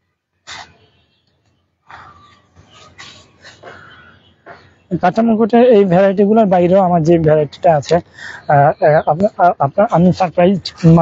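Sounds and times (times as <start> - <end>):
faint animal calls: 1.8 - 4.9.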